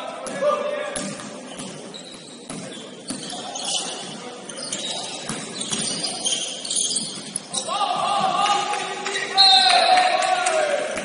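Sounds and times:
sneaker squeaks: 1.0s - 8.3s.

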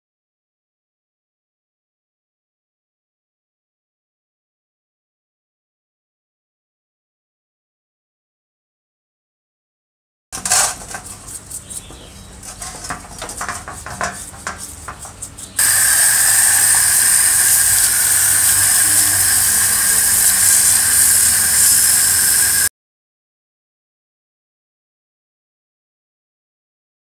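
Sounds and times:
stiff brush scrubbing metal: 10.4s - 22.7s
pressure washer spraying: 13.6s - 22.7s.

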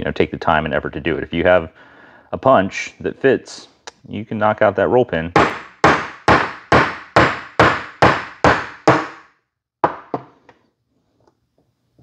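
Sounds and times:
hammer striking metal punch: 5.4s - 10.3s.

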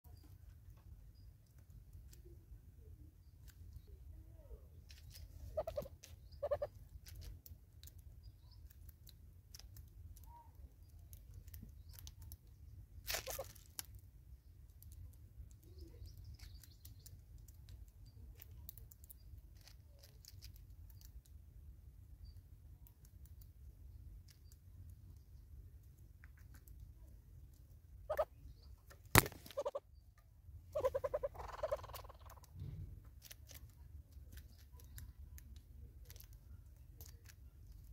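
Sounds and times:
low steady rumble: 0.1s - 37.9s
bill pecking at feeder: 5.0s - 13.6s, 22.9s - 37.9s
rustle: 13.0s - 14.0s
short bird calls: 29.3s - 29.9s.

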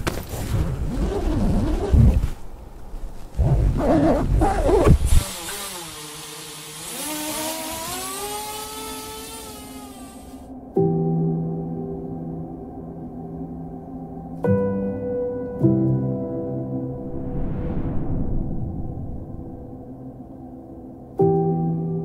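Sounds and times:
music: 9.2s - 22.0s
deep sweeping rumbles: 16.8s - 21.0s
rising pitched tones: 16.9s - 20.7s.

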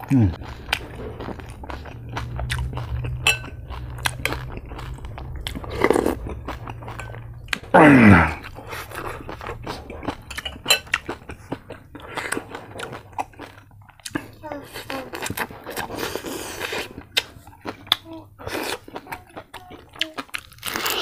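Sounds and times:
chewing crispy food: 0.0s - 21.0s
cutlery clinking on dishes: 10.3s - 11.0s.

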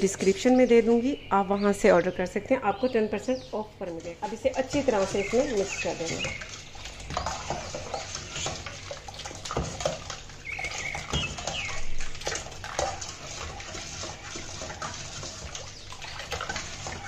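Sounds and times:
bird chirping: 0.0s - 3.7s, 5.0s - 6.9s, 10.4s - 12.0s
liquid sloshing in metal bowl: 3.6s - 17.0s.

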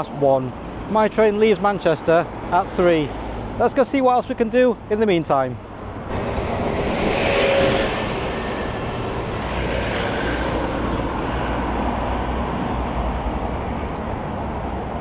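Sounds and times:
cars driving by: 0.0s - 15.0s
rumble of engines and tyres: 0.0s - 15.0s
bus passing: 5.6s - 15.0s.

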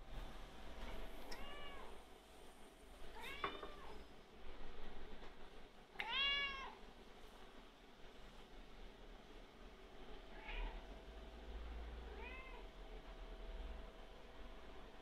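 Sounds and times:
cat meowing: 1.3s - 2.0s, 3.1s - 4.0s, 6.0s - 6.8s, 10.3s - 10.8s, 12.1s - 12.6s.

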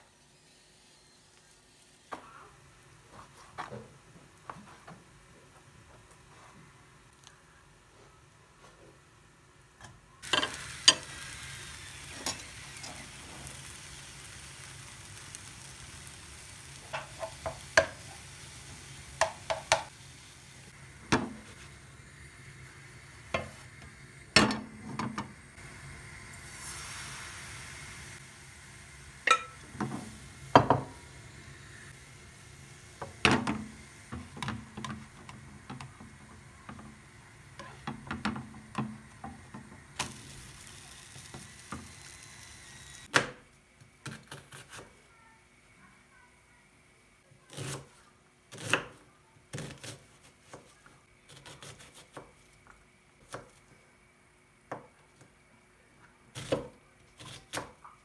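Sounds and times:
pan hissing on gas burner: 10.2s - 43.1s
ladle and pan clinking: 29.3s - 29.6s.

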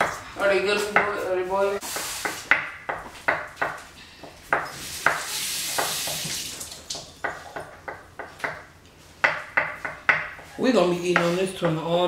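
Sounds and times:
steady hiss: 1.8s - 2.6s, 4.5s - 7.0s
knife chopping on wooden board: 7.2s - 10.5s.

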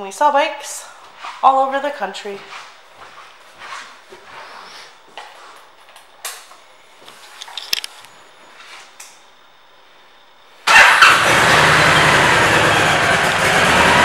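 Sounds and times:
motorcycle engine starting and running: 10.6s - 14.0s.

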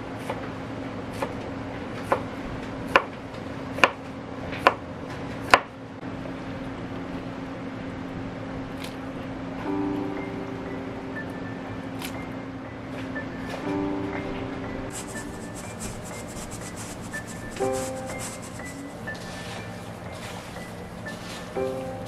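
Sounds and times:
steady low hum: 5.8s - 22.0s.

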